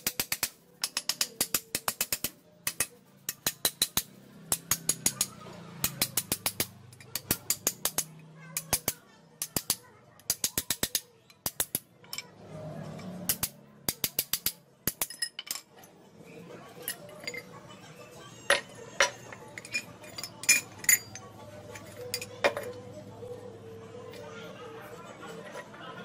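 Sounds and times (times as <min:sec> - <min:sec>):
hammer tapping on metal: 0:00.0 - 0:11.8
steel parts clinking: 0:00.0 - 0:16.0, 0:16.8 - 0:17.6, 0:18.5 - 0:22.9.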